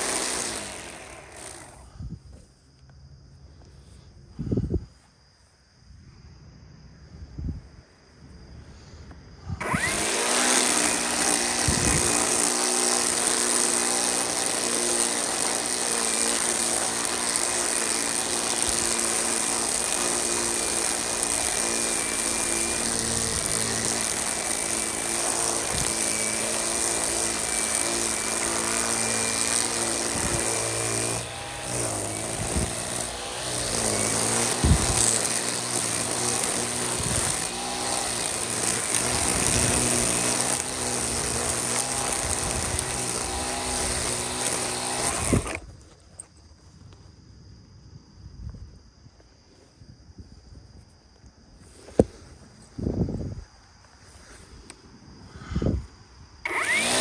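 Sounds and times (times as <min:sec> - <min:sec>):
string trimmer motor whining: 0:00.0 - 0:01.9, 0:09.5 - 0:45.8, 0:56.4 - 0:57.0.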